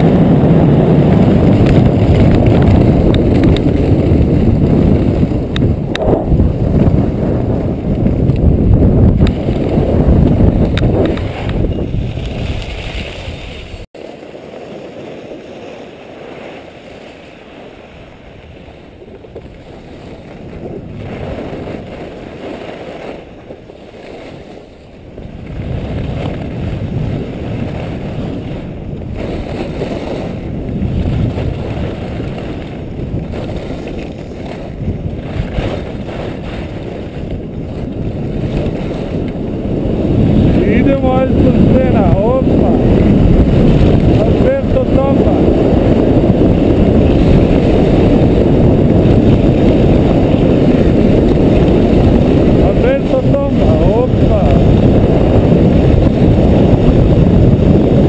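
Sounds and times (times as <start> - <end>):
wind rushing over microphone: 0.0 - 58.0
skis hissing and scraping on snow: 11.2 - 24.8, 33.2 - 34.8.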